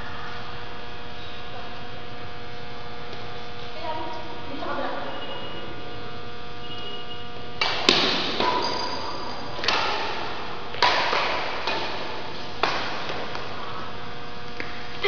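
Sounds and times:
electrical hum: 0.0 - 15.0
rackets hitting shuttlecock: 7.6 - 14.9.

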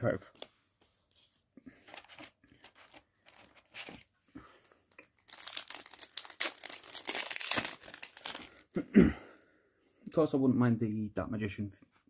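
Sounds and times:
foil wrapper crinkling and tearing: 4.9 - 8.7.

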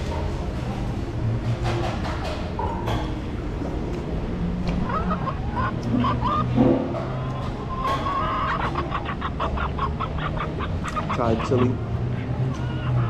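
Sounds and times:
chicken clucking: 4.7 - 13.0.

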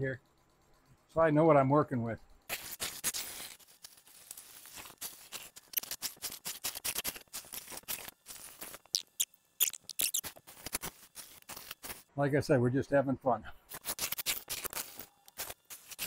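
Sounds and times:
brief high squeaks: 8.9 - 10.4.

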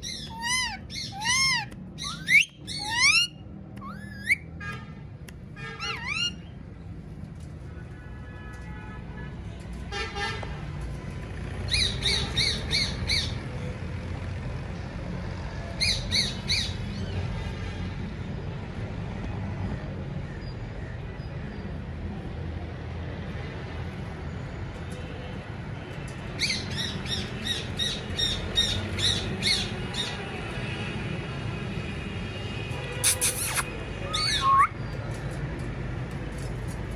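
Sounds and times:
parakeet screeching: 0.0 - 4.4, 5.8 - 6.5, 33.0 - 34.8.

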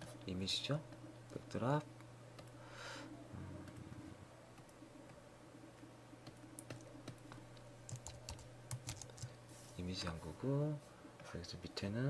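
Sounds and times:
low steady hum: 0.0 - 12.0
keyboard keys clicking: 5.8 - 9.3.

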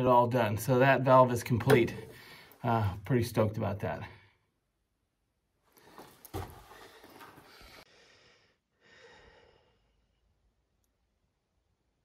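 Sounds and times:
man breathing out through nose: 6.7 - 10.0.

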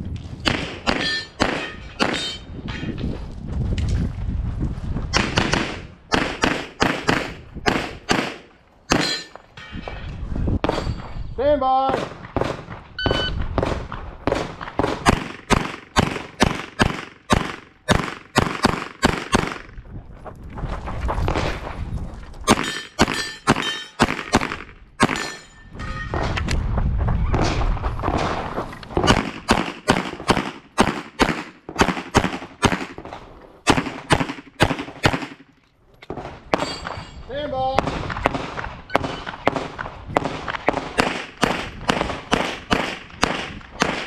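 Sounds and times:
pistol shots: 0.4 - 2.4, 5.2 - 9.2, 11.9 - 19.7, 22.5 - 25.4, 29.0 - 35.4, 37.8 - 44.0.

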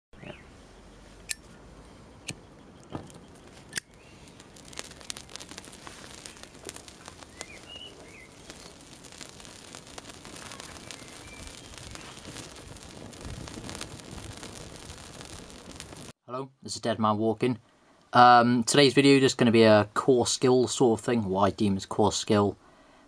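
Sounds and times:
flames crackling and popping: 2.2 - 16.2.

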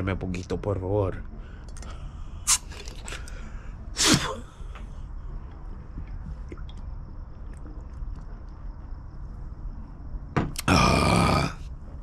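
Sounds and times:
man sneezing: 4.0 - 4.5.

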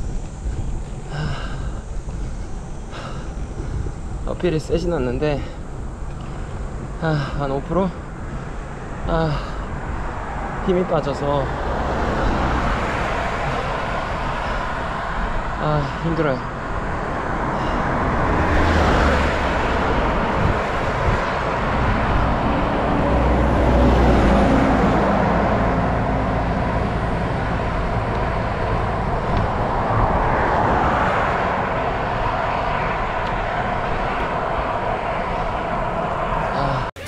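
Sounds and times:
wind on microphone: 0.0 - 7.0, 16.4 - 37.0
road noise rumble: 0.0 - 37.0.

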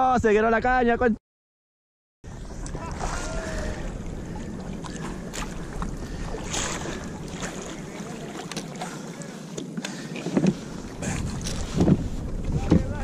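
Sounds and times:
water lapping against hull: 2.3 - 13.0
wind on microphone: 2.3 - 13.0
small knocks and splashes: 4.8 - 9.0.

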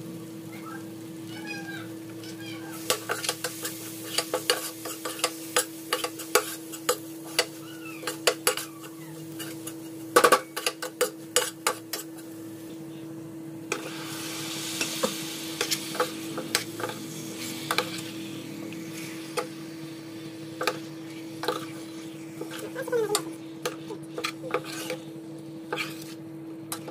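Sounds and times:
meat sizzling in hot pot: 0.0 - 12.8, 13.5 - 26.9
spoon scraping metal pot: 22.4 - 25.0, 25.7 - 26.2.

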